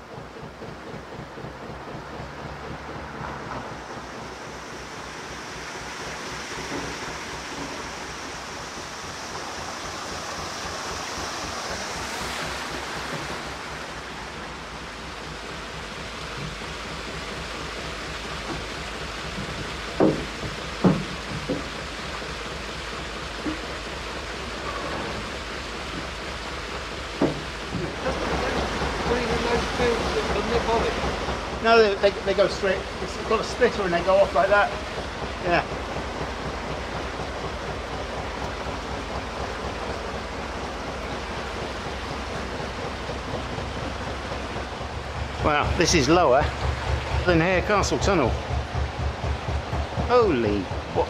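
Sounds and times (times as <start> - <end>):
diesel engine beat: 0.0 - 51.0
water rushing in lock: 0.0 - 51.0
sharp knocks: 19.4 - 21.8, 27.2 - 31.4.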